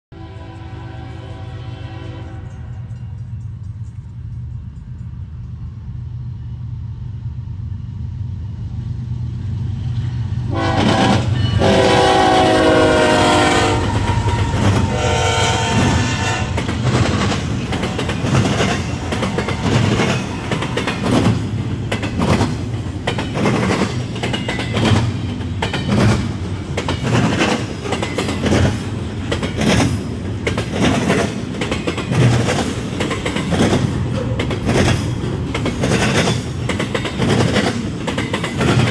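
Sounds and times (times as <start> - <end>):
train horn blasts: 0.1 - 3.2, 10.5 - 16.7
train rumble: 0.2 - 38.9
train wheels clacking on rails: 2.2 - 5.8, 10.7 - 38.9.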